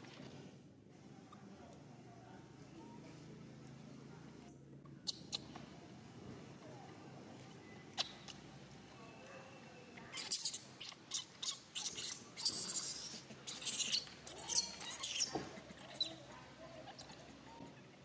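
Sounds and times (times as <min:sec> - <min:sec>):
baby monkey squealing: 0:10.1 - 0:17.6.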